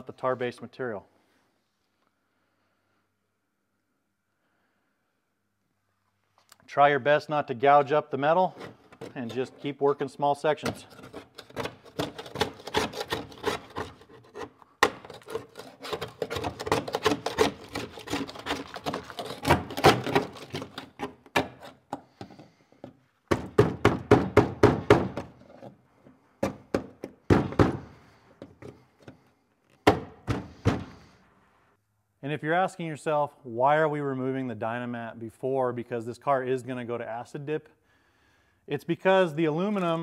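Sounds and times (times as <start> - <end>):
hand scraper scraping sound deadener: 8.3 - 22.6.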